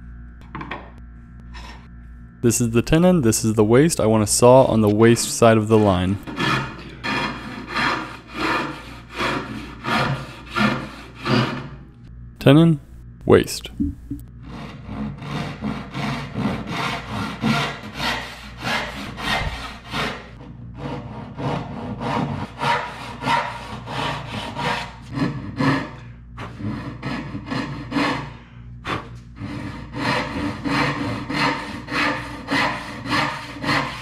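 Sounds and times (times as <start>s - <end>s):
hand saw cutting wood: 4.8s - 11.8s, 14.4s - 34.0s.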